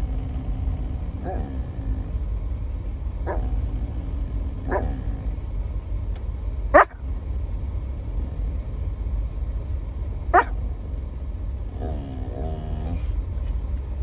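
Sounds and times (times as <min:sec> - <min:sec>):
steady low hum: 0:00.0 - 0:14.0
dog barking: 0:04.7 - 0:04.9, 0:06.7 - 0:07.0, 0:10.3 - 0:10.6.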